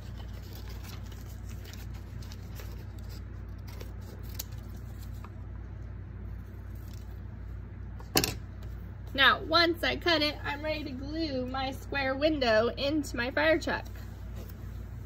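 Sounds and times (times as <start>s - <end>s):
paper rustle: 0.0s - 5.4s
steady low hum: 0.0s - 15.0s.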